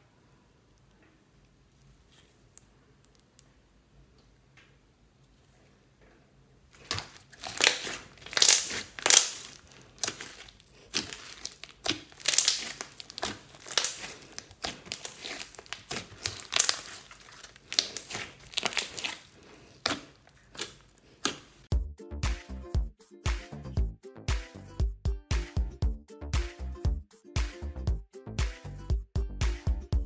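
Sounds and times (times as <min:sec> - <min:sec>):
slime squishing and crackling: 0:06.8 - 0:21.7.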